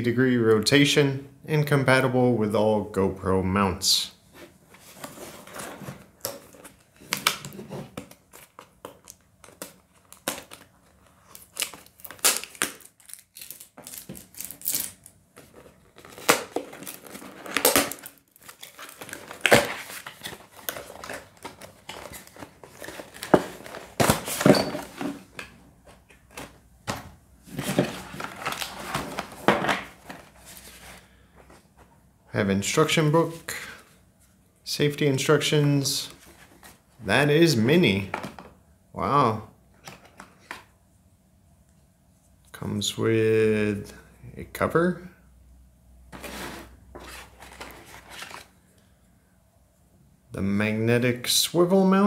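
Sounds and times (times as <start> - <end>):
paper sheets crinkling: 8.0 - 25.1, 27.5 - 31.2, 46.2 - 48.5.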